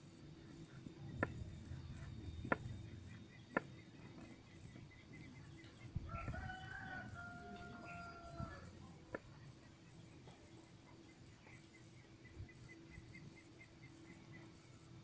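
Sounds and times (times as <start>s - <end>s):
rooster crowing: 6.0s - 8.7s.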